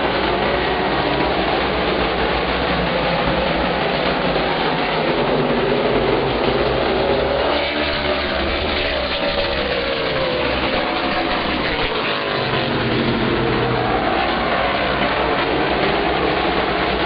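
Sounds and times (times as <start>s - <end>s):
race car engines passing at high revs: 0.0s - 17.0s.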